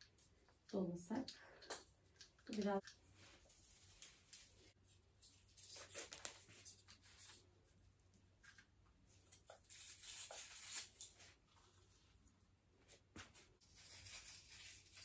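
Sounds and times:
plastic branches rustling: 2.5s - 7.5s, 9.1s - 11.8s, 13.6s - 15.0s.

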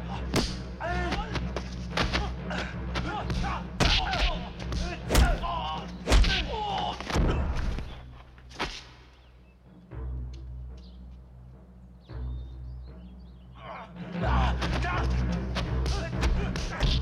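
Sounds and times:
fighters shouting and grunting: 0.0s - 7.9s, 13.6s - 17.0s
punch and kick impacts: 0.3s - 0.7s, 3.3s - 6.5s.

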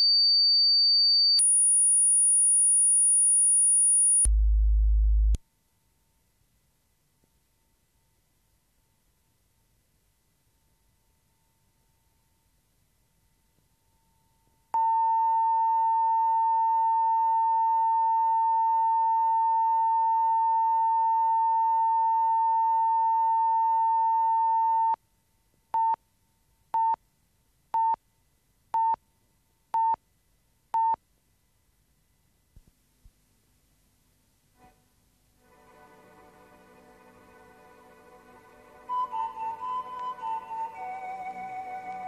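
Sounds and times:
short beeps: 0.0s - 5.4s, 14.8s - 25.0s
steady test tone: 1.4s - 5.4s.

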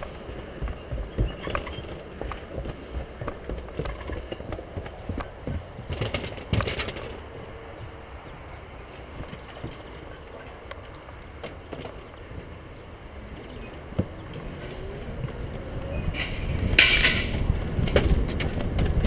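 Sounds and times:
bicycle rattling on wooden boards: 0.0s - 8.0s, 8.8s - 12.7s, 16.1s - 19.0s
footsteps on wooden stairs: 0.0s - 12.7s.

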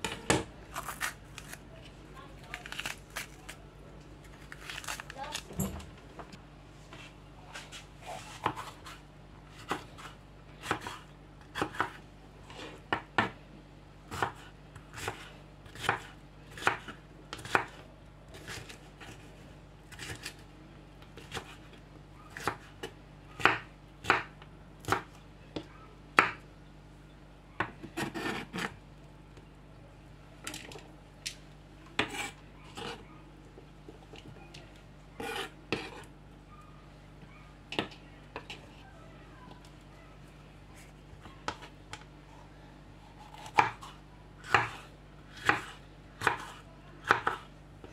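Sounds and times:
knife chopping on plastic board: 14.1s - 17.8s, 22.4s - 26.4s, 43.3s - 44.8s, 45.4s - 47.9s.

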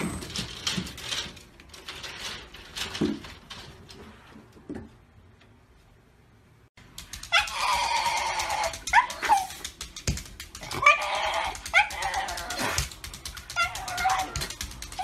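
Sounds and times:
dog yelping: 7.2s - 9.6s, 10.6s - 15.0s
dog whining: 7.3s - 9.6s, 10.6s - 15.0s.

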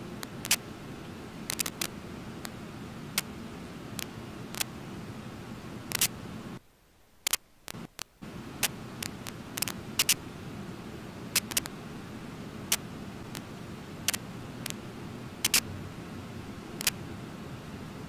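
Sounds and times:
sharp irregular clicks: 0.2s - 0.6s, 1.5s - 2.6s, 4.0s - 4.7s, 5.9s - 6.1s, 7.2s - 10.2s, 11.4s - 11.7s, 12.7s - 13.5s, 14.1s - 14.8s, 15.4s - 15.7s, 16.8s - 17.0s.

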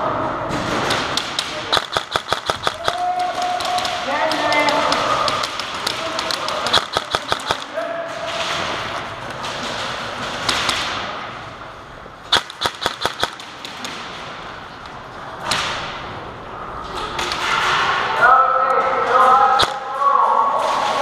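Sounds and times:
airsoft gun shots: 0.8s - 8.8s, 12.3s - 14.2s, 19.6s - 19.8s.

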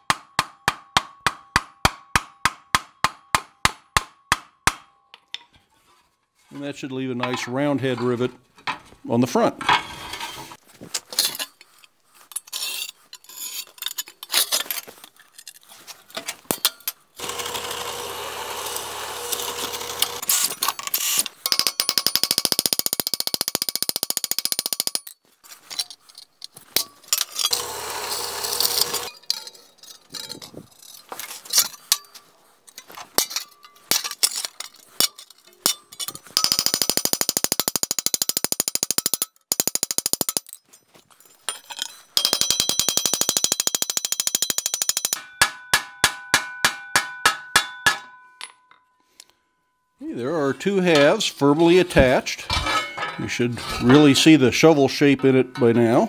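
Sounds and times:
hammer striking rivets on anvil: 0.0s - 5.5s, 21.4s - 25.1s, 35.0s - 40.6s, 41.5s - 48.8s.

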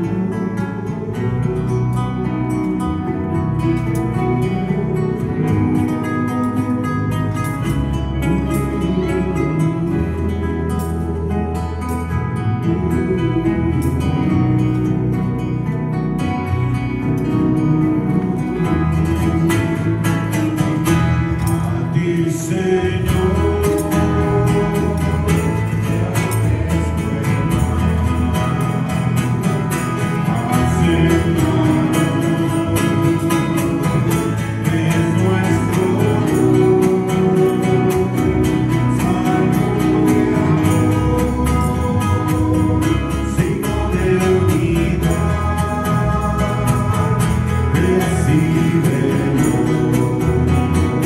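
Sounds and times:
strummed guitar: 0.0s - 51.0s
person singing a hymn: 21.5s - 29.4s, 30.0s - 51.0s.

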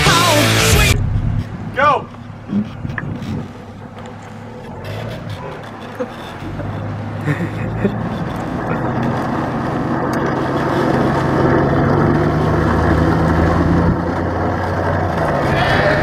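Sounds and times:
road noise: 0.0s - 16.0s
vehicle engine running: 0.0s - 16.0s.

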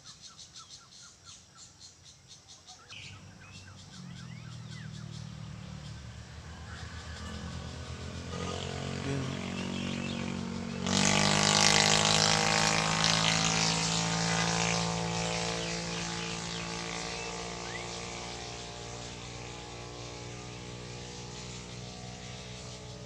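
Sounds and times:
vehicle engine passing by: 2.9s - 23.0s.

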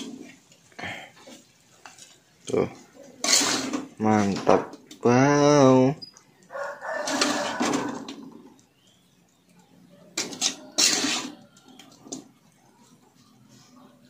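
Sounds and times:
metal spatula scraping wok: 3.1s - 4.5s, 7.0s - 8.1s, 10.1s - 11.6s.

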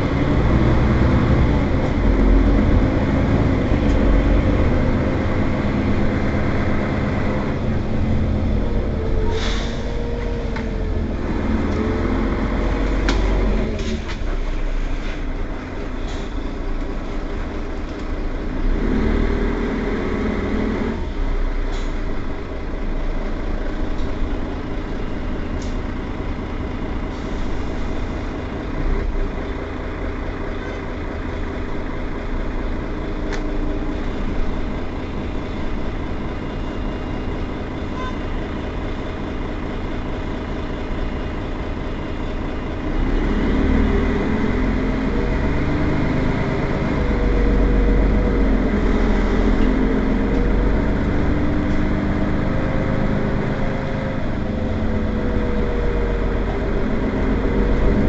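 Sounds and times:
bus engine rumbling: 0.0s - 58.0s.

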